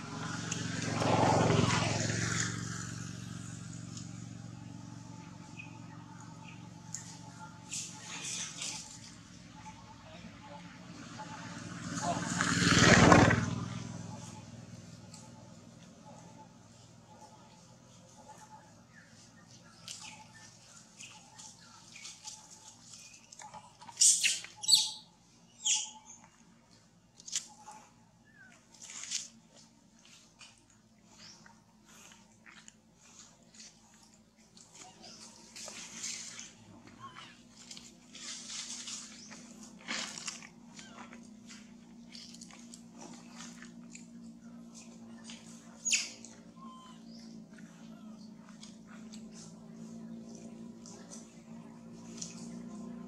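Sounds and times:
low hum: 0:00.0 - 0:12.0, 0:26.2 - 0:53.0.

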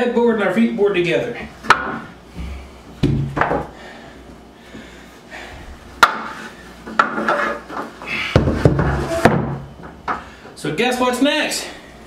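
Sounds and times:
heavy thumps: 0:01.7 - 0:03.7
wooden panels knocking and rubbing: 0:06.0 - 0:10.2.

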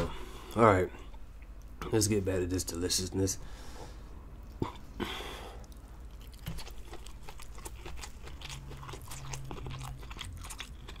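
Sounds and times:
crunchy chewing: 0:05.6 - 0:11.0.

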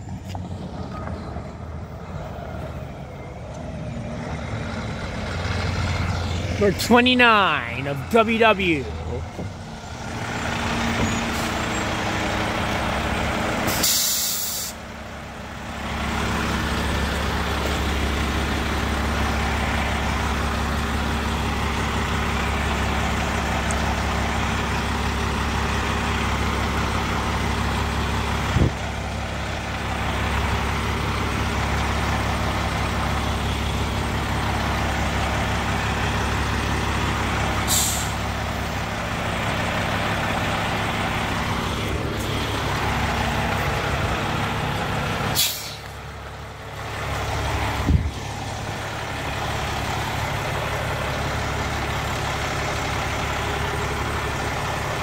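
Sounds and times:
diesel truck engine running: 0:00.0 - 0:55.0
air brakes hissing: 0:13.6 - 0:14.8, 0:37.6 - 0:38.3, 0:45.3 - 0:45.9.

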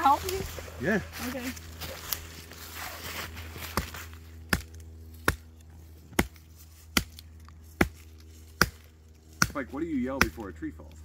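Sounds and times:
hatchet chopping wood: 0:03.7 - 0:10.6.

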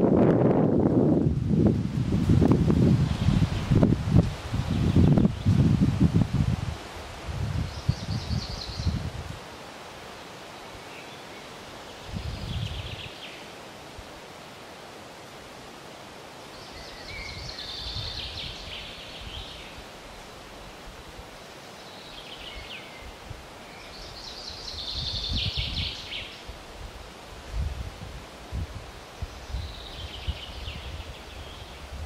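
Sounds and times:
wind rumbling on microphone: 0:00.0 - 0:09.5, 0:12.0 - 0:13.3, 0:16.8 - 0:21.3, 0:22.4 - 0:32.0
steady hiss: 0:00.8 - 0:32.0
birds singing: 0:07.6 - 0:09.0, 0:10.8 - 0:13.5, 0:16.5 - 0:19.8, 0:21.6 - 0:26.5, 0:29.2 - 0:31.9.

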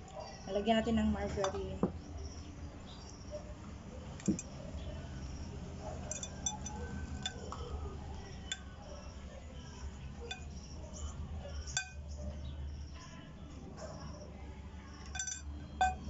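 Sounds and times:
spoon clinking against glass: 0:06.0 - 0:07.6, 0:10.2 - 0:10.7, 0:11.6 - 0:12.1, 0:15.0 - 0:16.0.

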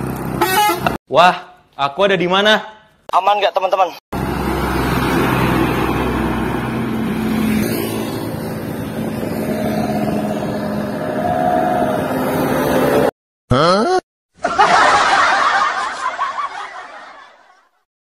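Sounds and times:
traffic noise: 0:00.0 - 0:01.0, 0:04.2 - 0:13.1
truck passing by: 0:04.2 - 0:13.1
vehicle engine approaching: 0:04.2 - 0:13.1.

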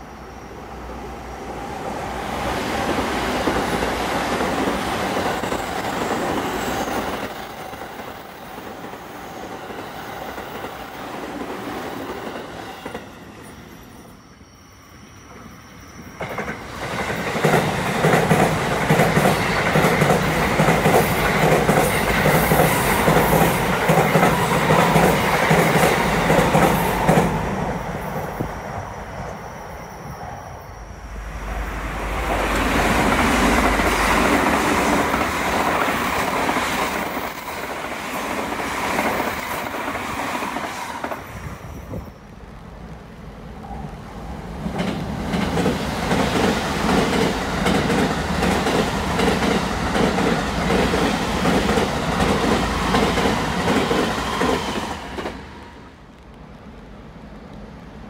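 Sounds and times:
train wheels clattering on bridge: 0:16.2 - 0:27.4, 0:44.7 - 0:55.4.

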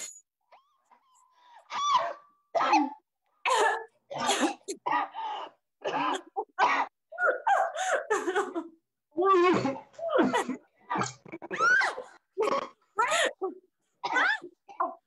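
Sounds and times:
people coughing and gasping: 0:02.6 - 0:08.8, 0:09.4 - 0:11.5, 0:12.4 - 0:15.0.

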